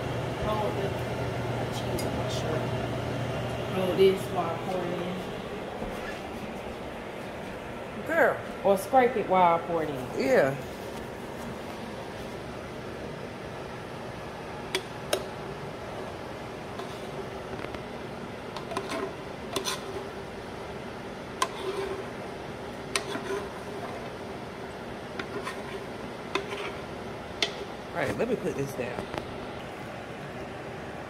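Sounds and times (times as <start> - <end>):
metal spoon scraping saucepan: 18.6 - 20.0, 21.4 - 22.1, 23.0 - 24.0, 25.2 - 26.8.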